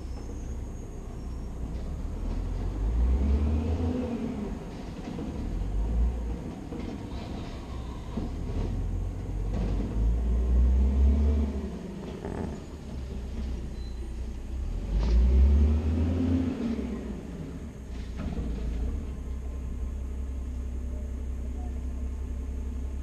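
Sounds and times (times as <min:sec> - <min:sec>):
garbage truck engine revving: 0:02.1 - 0:06.9, 0:08.4 - 0:13.6, 0:14.6 - 0:19.1.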